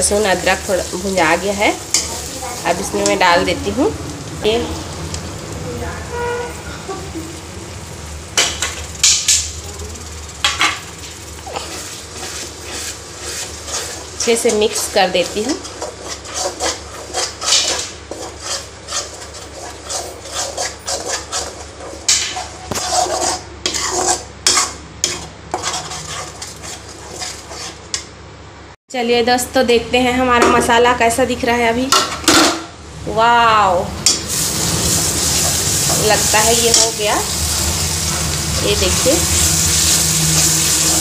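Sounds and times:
low frying sizzle: 0.0 - 28.2, 30.2 - 41.0
metal spatula scraping pan: 9.9 - 28.0, 34.0 - 41.0.

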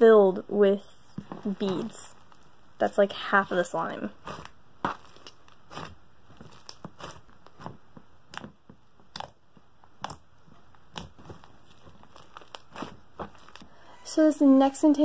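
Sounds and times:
bead slime squished by hand: 4.2 - 13.7.

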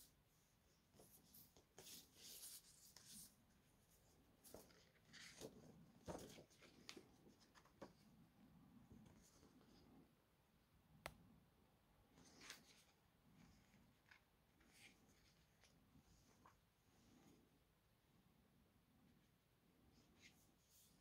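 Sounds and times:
paper and card rustling: 4.4 - 8.0.

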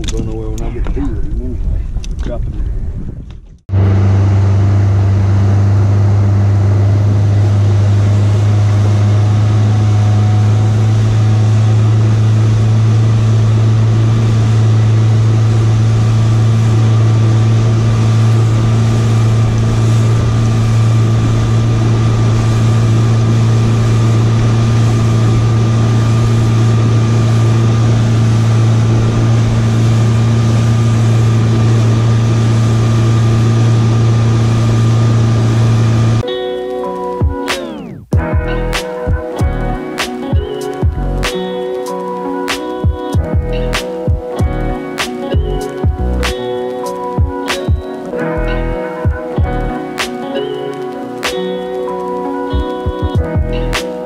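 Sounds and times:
outboard motor droning: 3.7 - 36.2.

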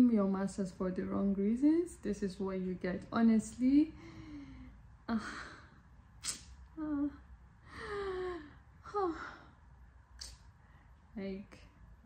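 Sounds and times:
woman speaking: 0.0 - 4.0, 11.2 - 11.7
mouth click: 6.2 - 6.5
woman sighing breathily: 7.6 - 9.4.

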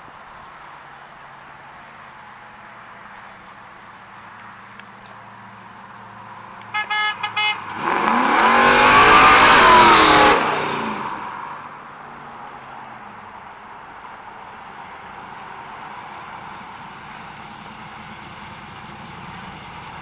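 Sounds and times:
car horn toots: 6.7 - 8.0
car engine driving past: 7.6 - 11.8.

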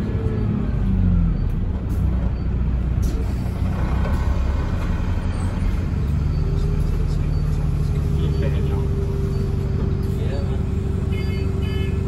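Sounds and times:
bus diesel engine drone: 0.0 - 12.0
cabin and road noise: 0.0 - 12.0.

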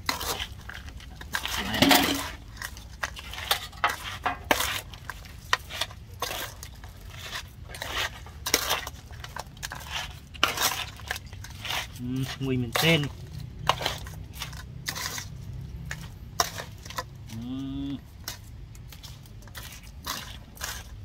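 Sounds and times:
metal spoon scraping aluminium bowl: 1.4 - 2.4, 3.1 - 4.9, 9.7 - 15.3.

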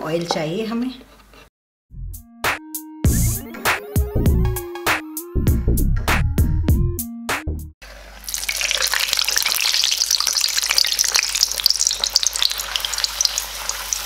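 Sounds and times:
background music: 1.9 - 7.7
dough sizzling in hot oil: 7.8 - 14.0.

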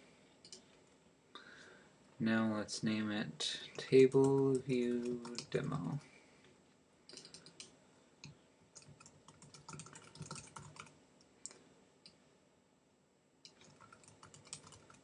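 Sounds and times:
computer keyboard typing: 3.8 - 5.9, 7.1 - 11.0, 13.5 - 15.0.

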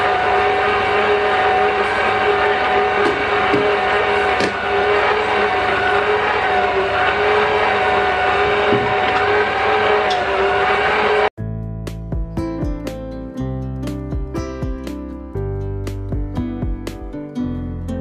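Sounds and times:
stand mixer motor whining: 0.0 - 11.3.

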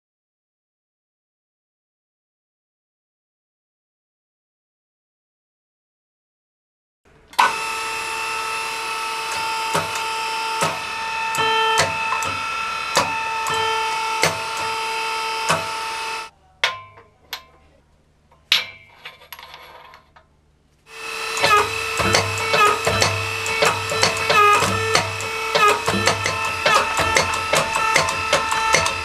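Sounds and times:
motor and pump whine: 7.3 - 16.3, 20.9 - 29.0.

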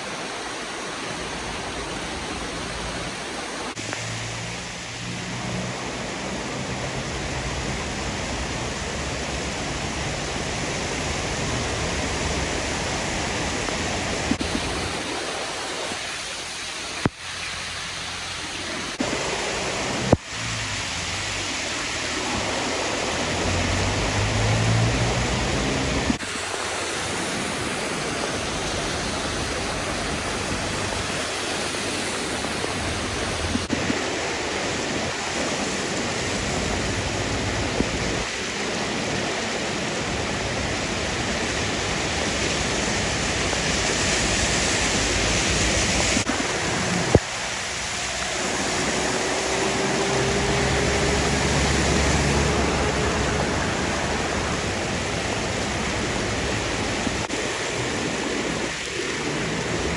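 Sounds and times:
heavy rain: 0.0 - 59.9
rushing floodwater: 0.0 - 59.9.

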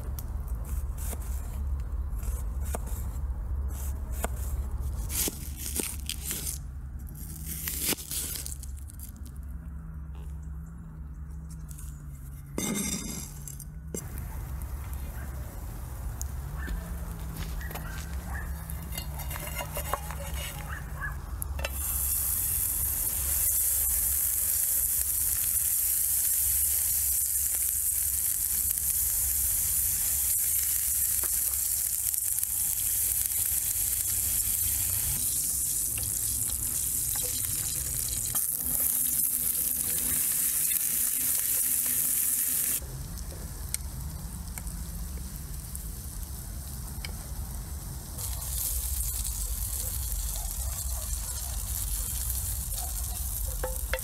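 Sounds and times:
meat sizzling: 21.5 - 42.8, 43.5 - 54.0.

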